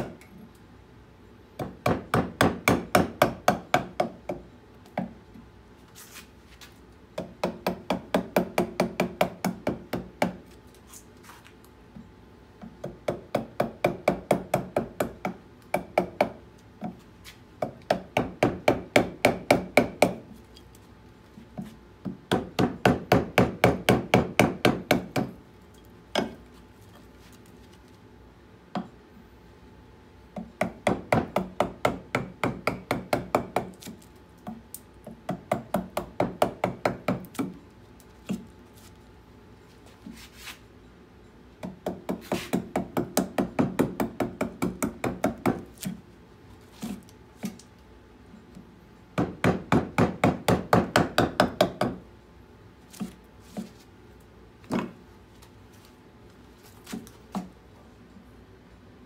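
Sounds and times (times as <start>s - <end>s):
mallet tapping a carving gouge: 1.6s - 5.2s, 7.2s - 10.4s, 12.6s - 17.0s, 17.6s - 20.3s, 21.6s - 25.3s, 30.4s - 37.6s, 41.6s - 45.7s, 49.2s - 52.0s.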